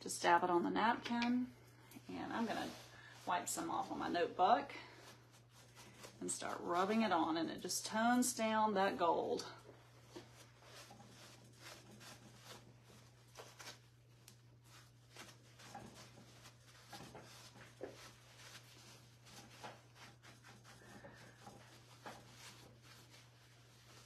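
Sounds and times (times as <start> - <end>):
paper napkin rustling and tapping: 10.0 - 24.0.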